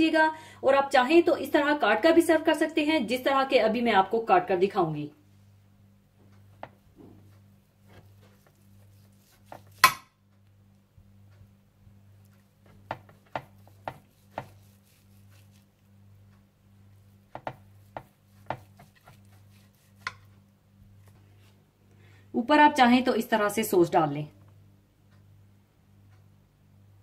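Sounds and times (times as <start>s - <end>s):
knife knocking on cutting board: 12.7s - 14.6s, 17.3s - 19.2s.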